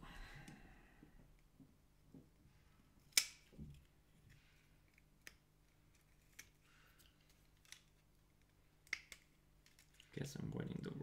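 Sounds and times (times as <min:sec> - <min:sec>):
plastic clicks and snaps: 0:03.1 - 0:03.9, 0:04.9 - 0:10.1.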